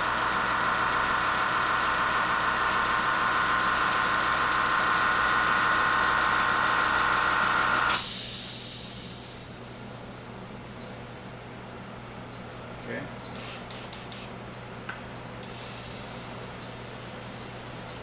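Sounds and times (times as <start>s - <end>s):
air compressor running: 0.0s - 11.4s, 13.4s - 14.3s, 15.4s - 18.0s
hiss of released air: 7.9s - 11.3s.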